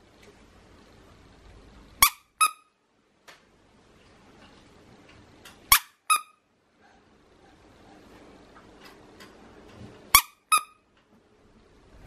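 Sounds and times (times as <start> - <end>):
squeaky dog toy squeaking: 2.0 - 2.8, 5.7 - 6.4, 10.1 - 10.8.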